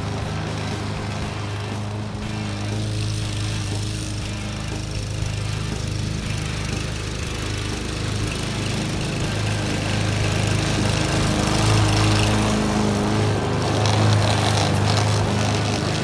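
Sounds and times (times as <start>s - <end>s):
lawn mower running: 0.0s - 16.0s.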